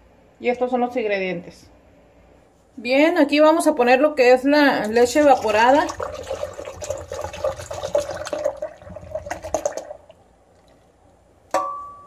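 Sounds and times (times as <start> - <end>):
milk pouring into glass jar: 4.8 - 10.9
sharp glass clink: 11.6 - 12.0.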